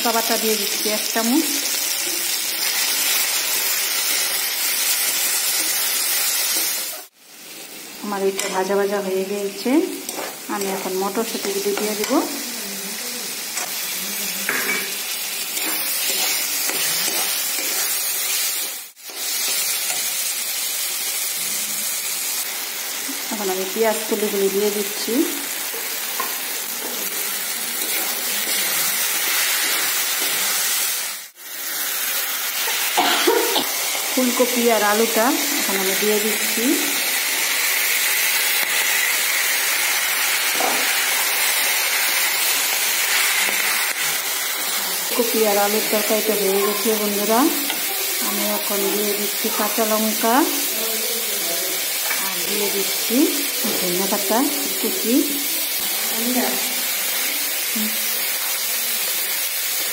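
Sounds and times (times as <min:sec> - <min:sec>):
vegetables sizzling in oil: 0:00.0 - 0:59.9
metal spatula scraping pan: 0:14.5 - 0:18.5.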